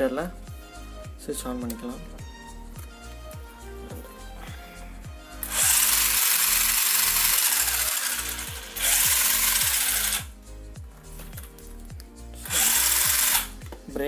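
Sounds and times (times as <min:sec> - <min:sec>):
background music: 0:00.0 - 0:14.0
toy truck electric motor whirring: 0:05.4 - 0:10.3, 0:12.4 - 0:13.5.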